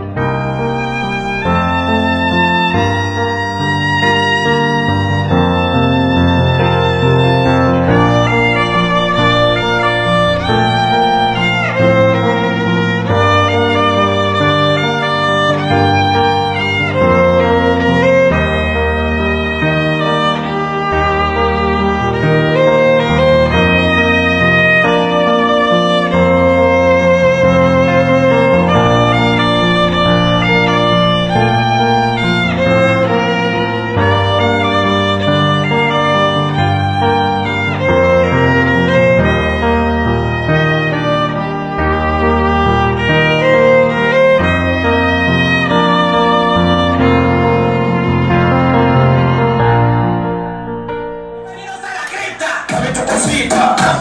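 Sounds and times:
sustained chords: 0.0 - 19.6, 27.2 - 34.4
slow gliding melody: 0.0 - 51.5
sustained bass notes: 6.6 - 13.3, 27.6 - 33.6.

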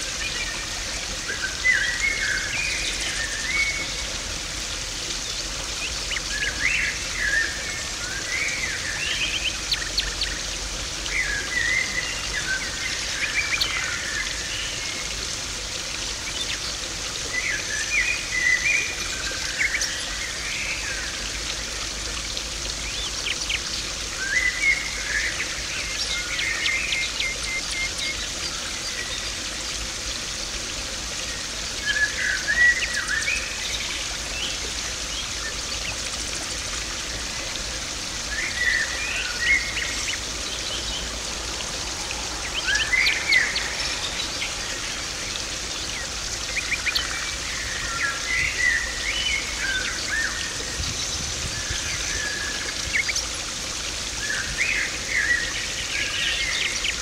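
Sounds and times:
water rushing and splashing: 0.0 - 57.0
birds chirping: 38.2 - 53.2.

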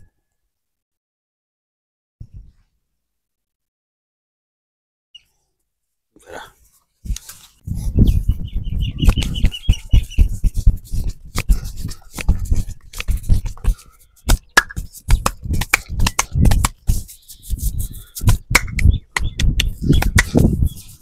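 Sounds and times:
hands slapping and patting head: 9.0 - 21.0.

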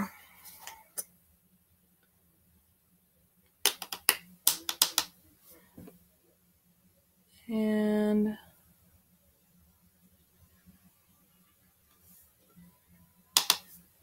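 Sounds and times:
makeup palette clicks and taps: 3.6 - 5.1, 13.4 - 13.6.

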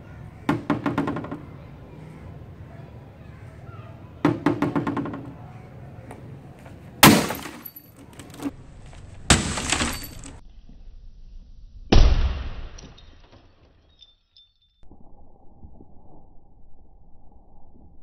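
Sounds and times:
axe striking monitor: 7.0 - 7.8, 9.3 - 10.4
glass and plastic breaking: 7.0 - 10.4.

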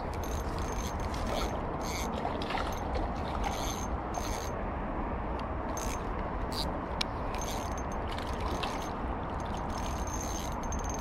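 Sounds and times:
fishing reel whirring: 0.1 - 2.2, 3.5 - 4.6, 5.7 - 6.7, 7.3 - 11.0.

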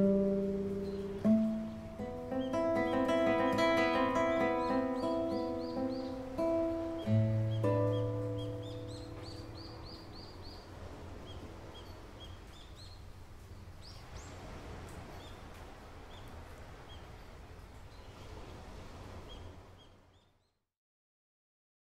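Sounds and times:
steady rain falling: 0.0 - 20.2
small bird chirping: 0.8 - 14.4.

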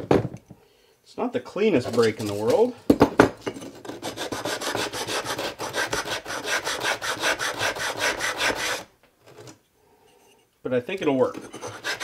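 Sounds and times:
tile scraping on abrasive block: 3.7 - 9.6, 11.2 - 12.0.

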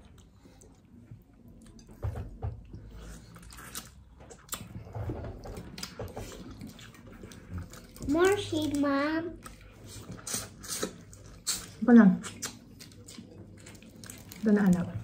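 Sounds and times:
chewing and lip smacking: 5.6 - 8.2, 9.4 - 14.4.

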